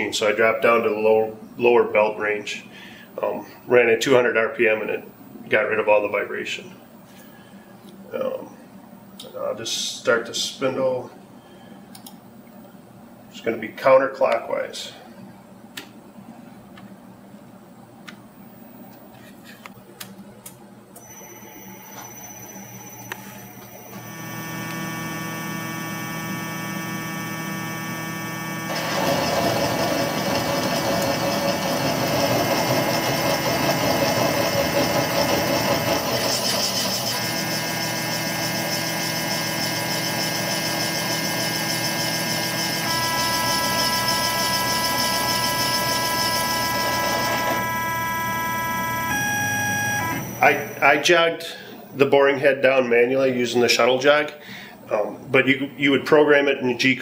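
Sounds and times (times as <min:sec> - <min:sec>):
spindle drive whine: 0:20.4 - 0:51.1
metal cutting noise: 0:23.9 - 0:50.9.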